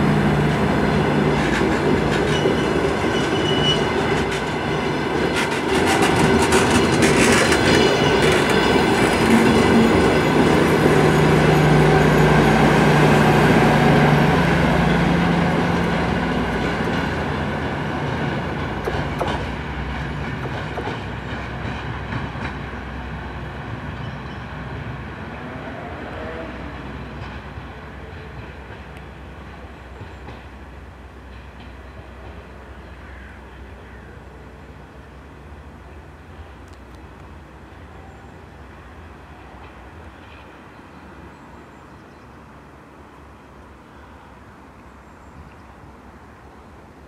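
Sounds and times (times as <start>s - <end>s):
train wheels on rails: 0.0s - 33.0s, 38.6s - 41.4s
train diesel engine hum: 0.0s - 44.8s.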